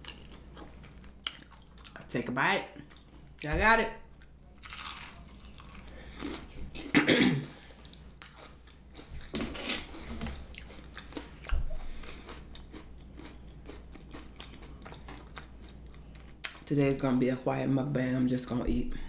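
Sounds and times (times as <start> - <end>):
chewing with small crunches: 0.0 - 3.5, 4.2 - 6.9, 7.5 - 16.7
biting crunchy food: 4.2 - 6.9.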